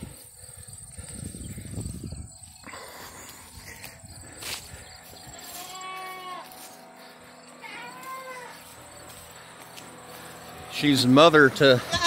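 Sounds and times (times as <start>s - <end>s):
young goat bleating: 5.3s - 6.6s, 7.6s - 8.6s, 11.7s - 12.0s.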